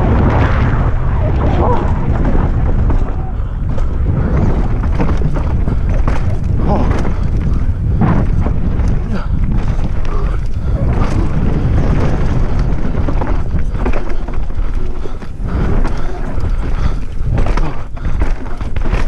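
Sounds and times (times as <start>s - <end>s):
tyres rumbling over rocky dirt: 0.0s - 19.0s
wind buffeting a microphone: 0.0s - 19.0s
bike rattling and knocking: 1.6s - 19.0s.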